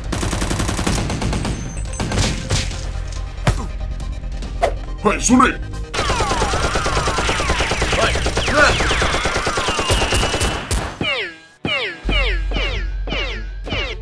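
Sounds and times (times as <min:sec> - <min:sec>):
automatic gunfire: 0:06.0 - 0:11.0.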